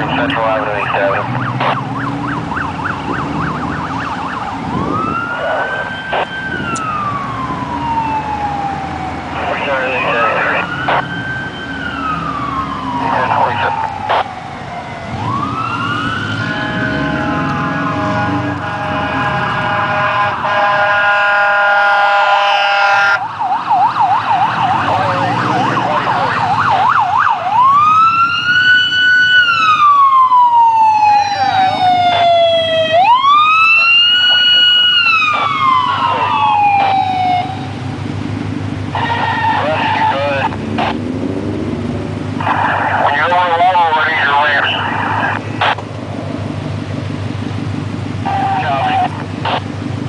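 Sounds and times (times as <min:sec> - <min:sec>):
low vehicle rumble: 0:00.0 - 0:20.6, 0:23.2 - 0:50.0
emergency vehicle siren: 0:00.0 - 0:50.0
truck air horn chord: 0:16.5 - 0:23.1.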